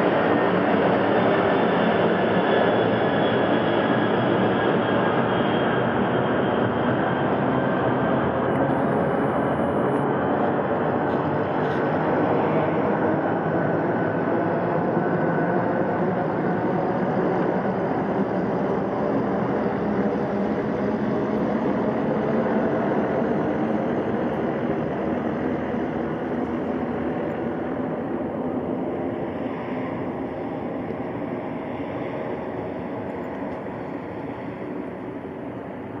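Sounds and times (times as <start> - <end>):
jet engines rumbling: 0.0 - 36.0.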